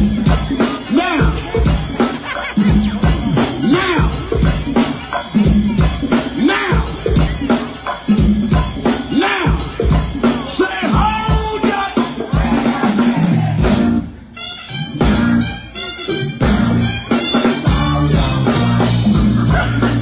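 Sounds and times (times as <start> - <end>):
drum kit beat: 0.0 - 20.0
live band playing: 0.0 - 20.0
voices: 0.1 - 8.1.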